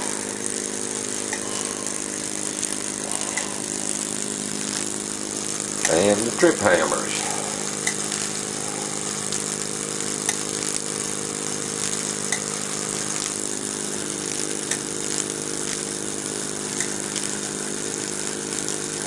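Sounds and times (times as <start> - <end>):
steam engine mechanical hum: 0.0 - 19.0
steam hiss: 0.0 - 19.0
faint sharp ticks: 16.8 - 17.0.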